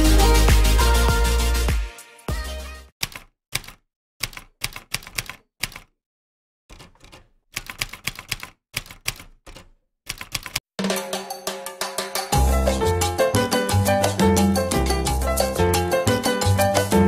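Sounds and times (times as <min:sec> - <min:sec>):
music: 0:00.0 - 0:02.9, 0:10.8 - 0:17.0
typewriter key clacks: 0:03.0 - 0:05.9, 0:06.7 - 0:10.6.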